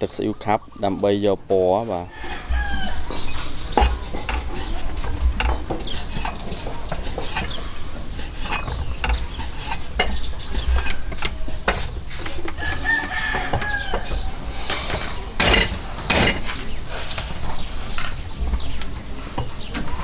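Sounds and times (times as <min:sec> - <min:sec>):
rooster crowing: 0:02.0 - 0:03.7, 0:12.4 - 0:15.4.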